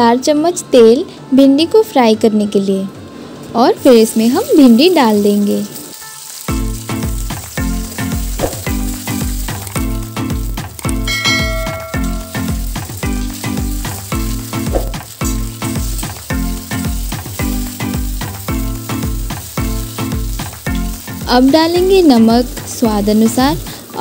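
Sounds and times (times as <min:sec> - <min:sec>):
background music with steady beat: 0:02.6 - 0:24.0
okra sizzling in oil: 0:03.8 - 0:24.0.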